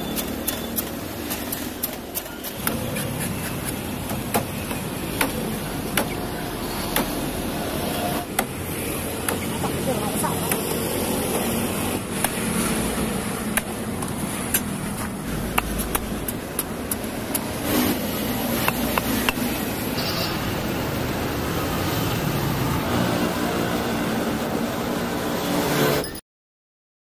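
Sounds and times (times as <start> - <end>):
street traffic: 0.0 - 26.2
cleaver chopping on wooden block: 0.1 - 6.2, 15.5 - 17.6, 18.6 - 19.5.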